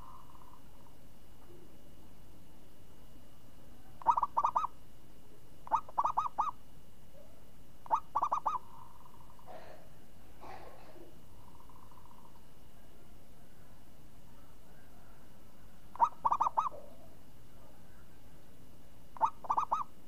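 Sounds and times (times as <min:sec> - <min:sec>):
dove cooing: 0:00.0 - 0:00.9, 0:03.8 - 0:04.8, 0:05.7 - 0:06.6, 0:07.8 - 0:12.4, 0:14.3 - 0:18.0, 0:19.2 - 0:20.0.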